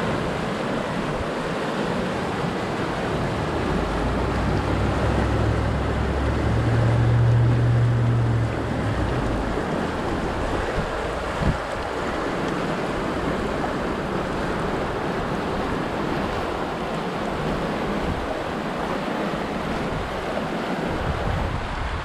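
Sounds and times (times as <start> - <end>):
river rushing over rocks: 0.0 - 22.0
wind rumbling on microphone: 0.0 - 22.0.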